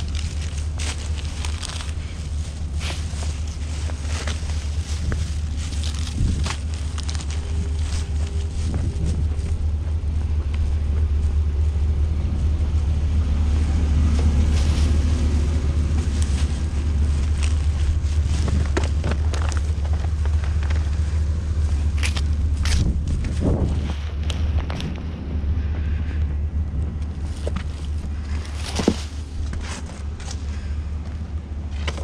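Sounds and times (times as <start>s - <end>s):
low engine drone: 0.0s - 32.0s.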